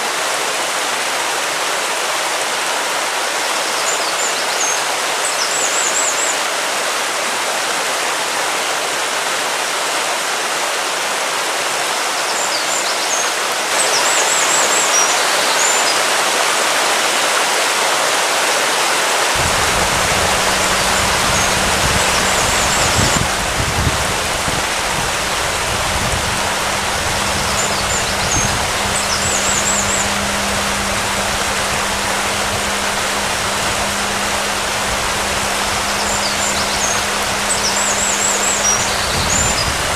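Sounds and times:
rushing water noise: 0:00.0 - 0:39.9
low rumble: 0:19.4 - 0:39.9
steady low hum: 0:19.4 - 0:39.9.

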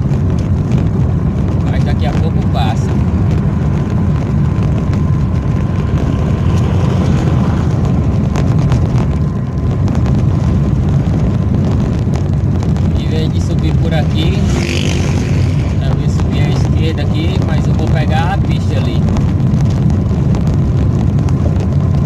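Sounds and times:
tyres rumbling on stones: 0:00.0 - 0:22.0.

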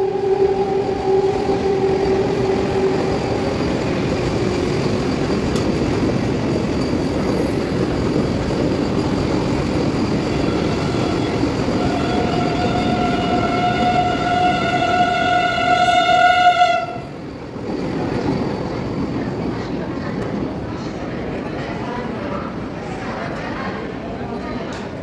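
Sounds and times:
train horn: 0:00.0 - 0:03.9, 0:10.3 - 0:17.2
train wheels rumbling on rails: 0:00.0 - 0:25.0.

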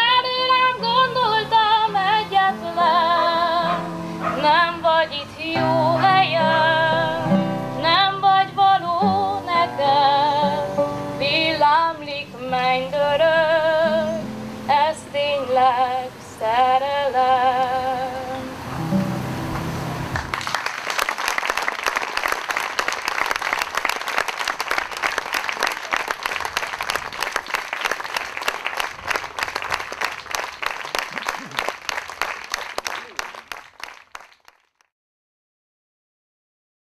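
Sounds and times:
audience applauding: 0:20.1 - 0:34.9.

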